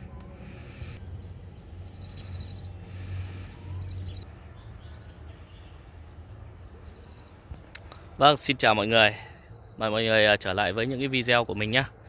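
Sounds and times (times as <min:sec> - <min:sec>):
small animal chirping trills: 0:00.5 - 0:04.2.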